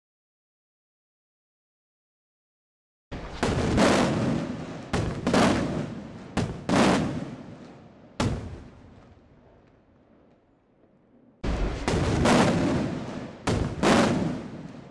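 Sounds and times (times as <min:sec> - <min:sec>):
rolling echo: 0:03.2 - 0:14.9.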